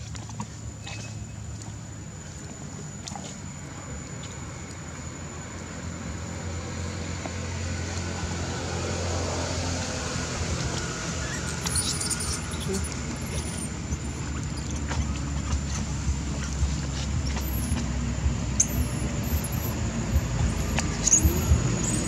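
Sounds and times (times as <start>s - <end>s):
vehicle engine running: 3.6s - 22.0s
faint high chirps: 18.6s - 22.0s.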